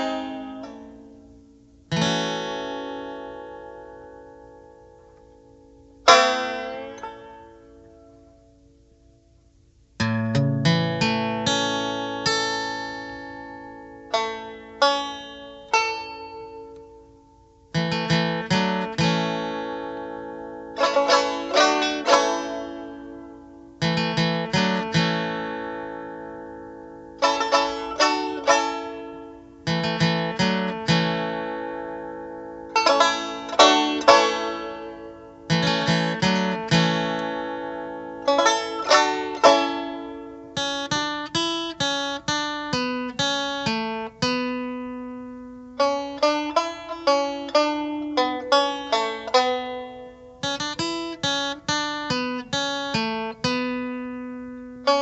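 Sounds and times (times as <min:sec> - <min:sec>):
plucked string instrument: 0:00.0 - 0:55.0.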